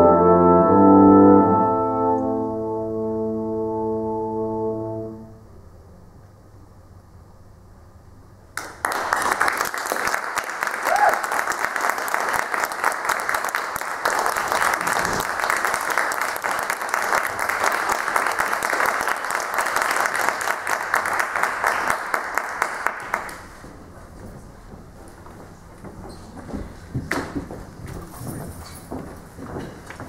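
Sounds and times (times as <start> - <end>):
audience applauding: 8.6 - 23.6.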